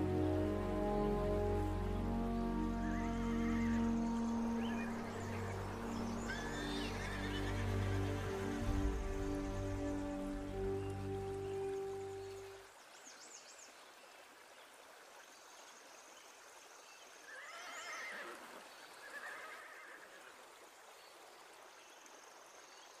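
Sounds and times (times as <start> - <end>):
river rushing: 0.0 - 13.0
horse whinnying: 6.3 - 8.1, 17.3 - 18.4, 19.1 - 20.0.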